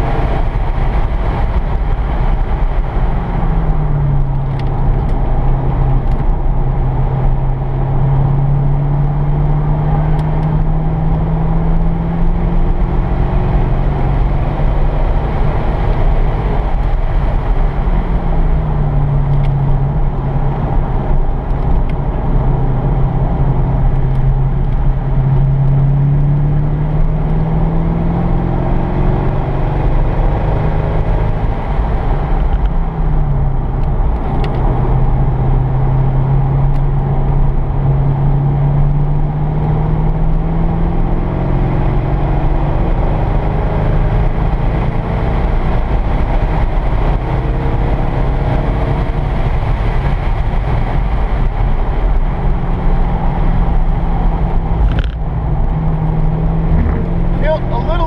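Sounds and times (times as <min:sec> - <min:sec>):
car engine under throttle: 0:00.0 - 0:58.0
tyre and wind noise: 0:00.0 - 0:58.0.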